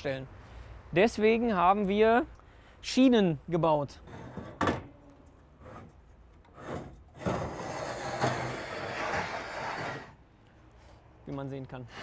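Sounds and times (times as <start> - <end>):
metal rail scraping in channel: 6.5 - 10.2.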